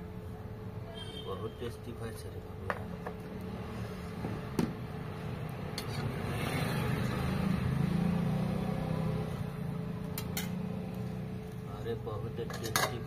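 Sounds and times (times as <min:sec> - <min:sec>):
vehicle engine passing: 0:03.2 - 0:11.9.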